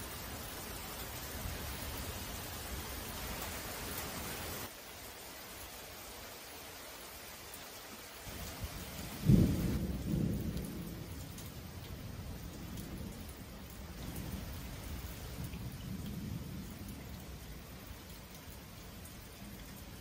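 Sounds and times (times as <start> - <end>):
steady rain: 0.0 - 20.0
thunder clap and rumble: 9.1 - 13.3, 15.4 - 17.2.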